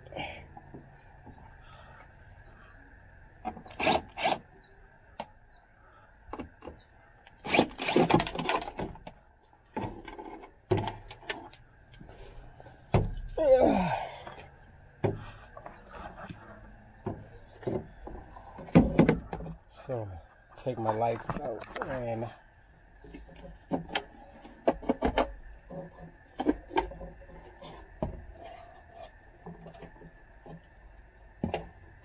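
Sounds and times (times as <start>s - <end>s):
plastic parts clicking and rubbing: 6.3s - 12.1s.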